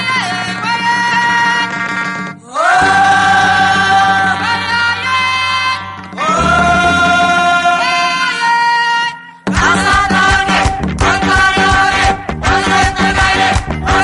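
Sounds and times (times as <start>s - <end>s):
instrumental accompaniment: 0.0s - 8.6s.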